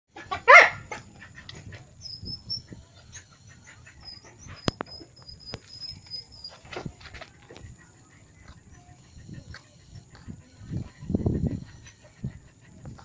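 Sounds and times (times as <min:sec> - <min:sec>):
faint high chirping: 0:02.0 - 0:06.6.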